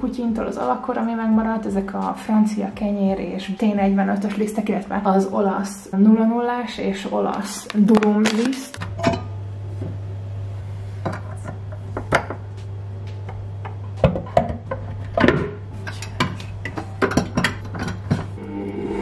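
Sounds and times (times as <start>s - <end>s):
low steady hum: 0.0s - 19.0s
clinks and knocks of metal and plastic: 14.0s - 18.3s.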